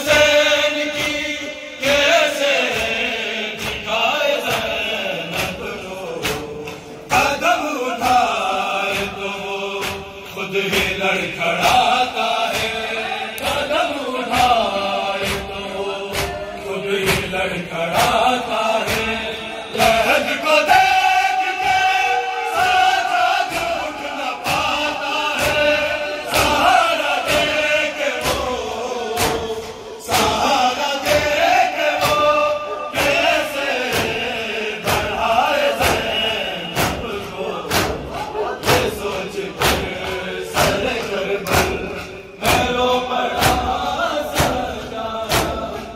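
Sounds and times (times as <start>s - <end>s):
lead reciter: 0.0s - 45.9s
men chanting in unison: 0.0s - 45.9s.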